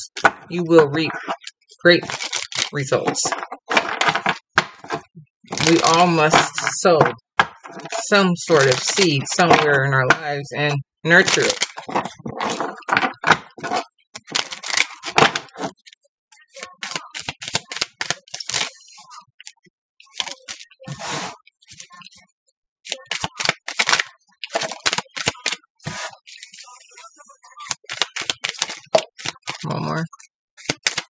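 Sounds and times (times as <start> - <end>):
cards being shuffled by hand: 0.0 - 10.3, 11.1 - 15.9, 16.6 - 18.9, 22.9 - 26.8, 27.6 - 29.8, 30.6 - 31.0.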